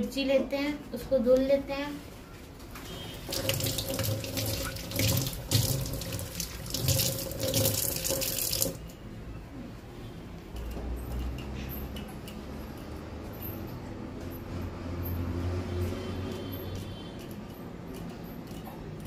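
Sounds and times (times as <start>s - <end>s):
tap running into metal sink: 3.2s - 8.8s.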